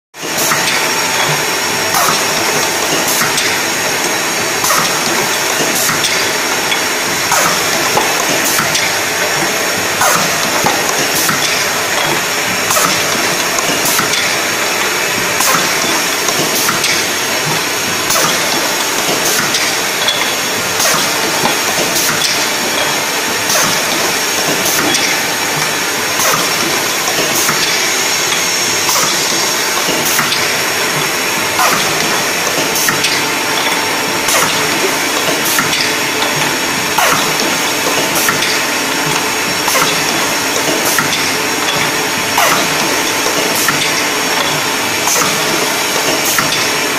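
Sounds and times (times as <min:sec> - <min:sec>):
filling machine whirring hiss: 0:00.2 - 0:46.9
sharp machine click: 0:15.4 - 0:46.7.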